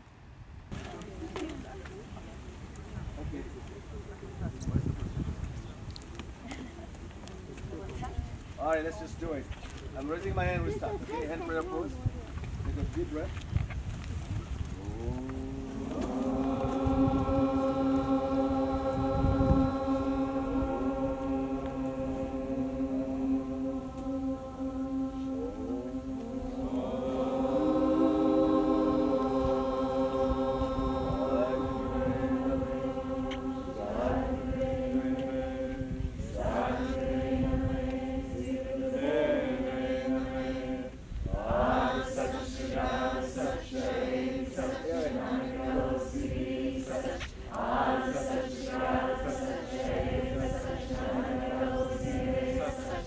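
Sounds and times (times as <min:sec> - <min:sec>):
group chanting a prayer: 0:14.8 - 0:53.0.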